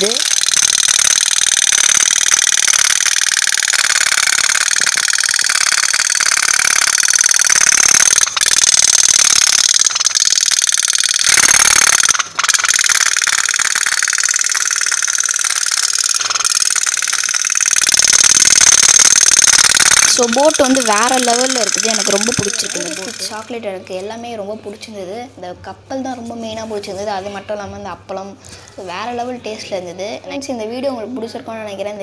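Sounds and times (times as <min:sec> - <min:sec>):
pop-pop boat putt-putt rattle: 0:19.4 - 0:23.5.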